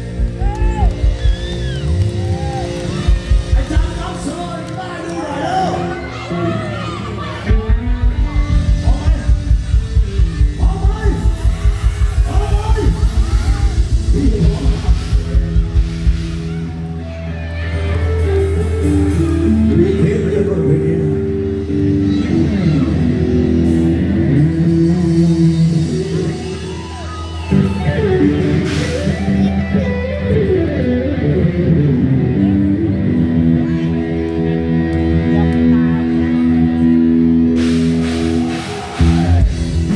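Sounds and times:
held bass and keyboard notes: 0.0s - 39.9s
live rock band through speakers: 0.0s - 39.9s
driving kick-drum beat: 7.5s - 16.7s, 37.7s - 39.9s.

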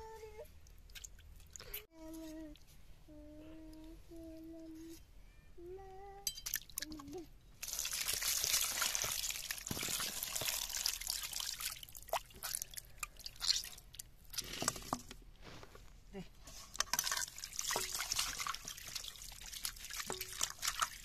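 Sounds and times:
water splashing and dripping: 0.6s - 1.7s, 6.4s - 14.4s, 16.9s - 21.0s
water pouring: 7.6s - 15.1s, 16.7s - 21.0s
hands rubbing and rinsing: 16.7s - 21.0s.

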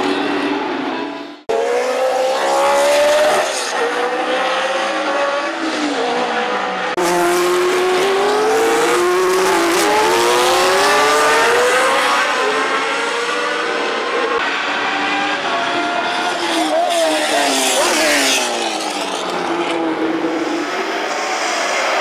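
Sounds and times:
racing car engines accelerating: 0.0s - 22.0s.

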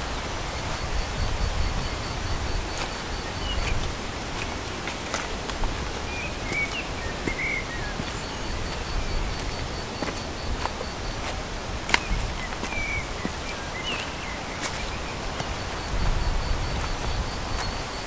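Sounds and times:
footsteps on wet leaves: 0.0s - 18.0s
rapid high insect pulse: 0.0s - 18.0s
steady rushing hiss: 0.0s - 18.0s
bird chirps: 6.1s - 10.0s, 11.9s - 15.6s.

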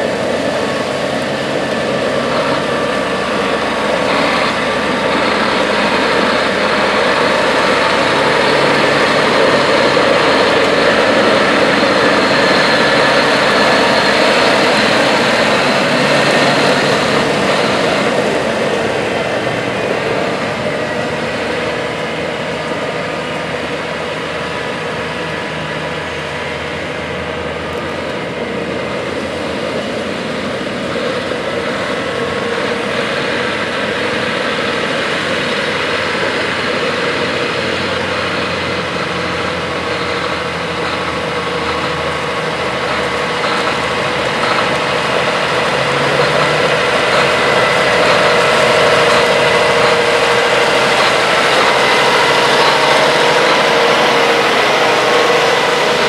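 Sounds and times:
tractor diesel engine running: 0.0s - 56.0s
rubber tracks rolling on gravel: 36.9s - 56.0s.

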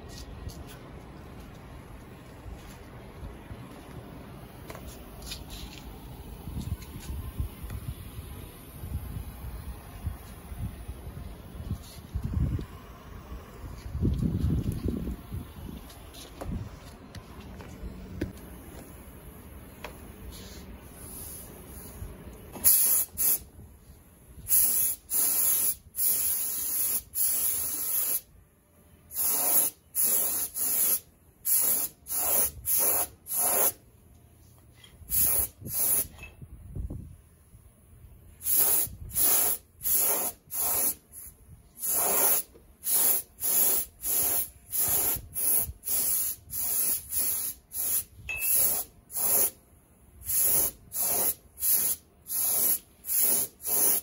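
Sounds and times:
spray gun hissing bursts: 22.6s - 23.5s, 24.5s - 28.3s, 29.1s - 33.8s, 35.1s - 36.2s, 38.4s - 49.6s, 50.2s - 54.0s.

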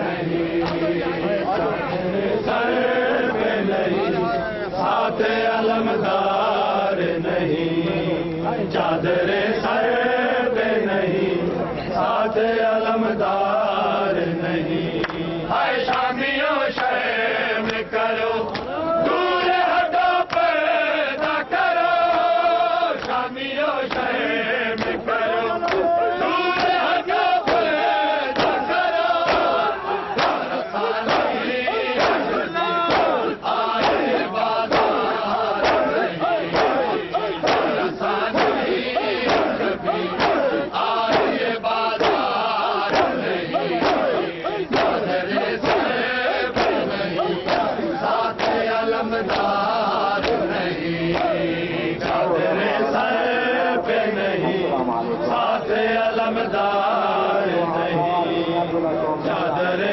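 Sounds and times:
men chanting in unison: 0.0s - 59.9s
hands slapping chests: 0.6s - 0.9s, 23.0s - 23.2s, 25.6s - 25.9s, 26.6s - 41.4s, 42.0s - 49.6s, 50.2s - 50.5s, 51.1s - 51.4s.

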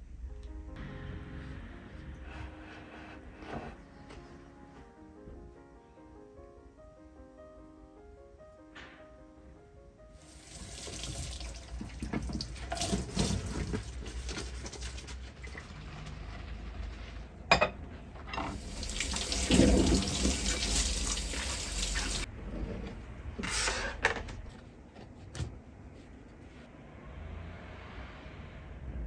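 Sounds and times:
tap water running and splashing: 10.2s - 16.2s, 18.5s - 22.3s.

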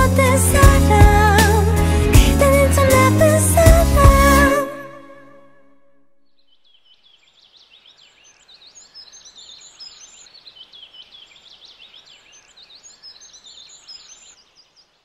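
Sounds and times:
birds chirping and twittering: 6.4s - 15.0s.

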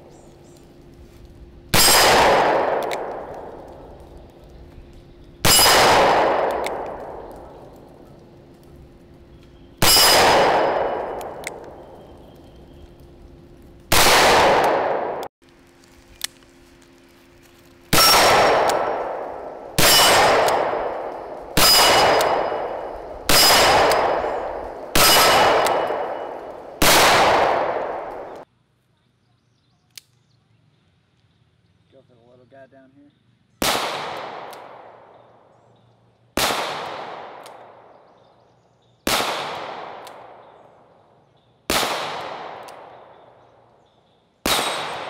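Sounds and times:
revolver gunshots: 1.7s - 4.0s, 5.4s - 7.8s, 9.8s - 12.0s, 13.9s - 15.3s, 17.9s - 28.4s, 33.6s - 35.2s, 36.4s - 37.9s, 39.1s - 40.6s, 41.7s - 43.4s, 44.4s - 45.0s.

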